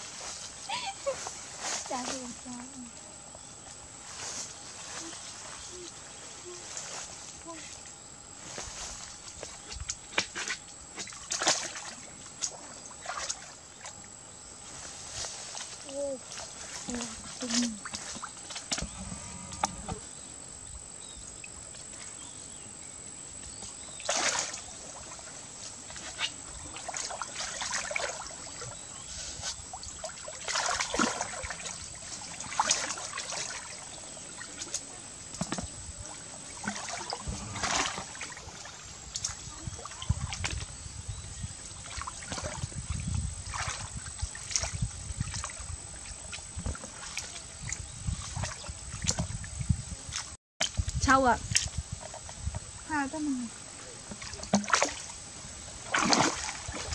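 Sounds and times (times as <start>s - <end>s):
water sloshing and splashing: 3.6s - 20.2s, 23.3s - 56.9s
water trickling: 23.3s - 56.9s.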